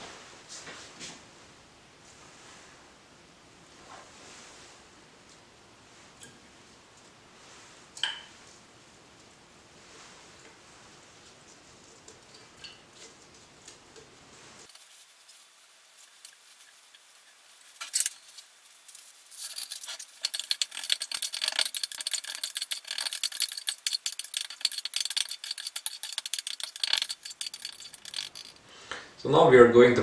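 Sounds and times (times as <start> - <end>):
metal spoon clinking in glass beaker: 19.4 - 28.6.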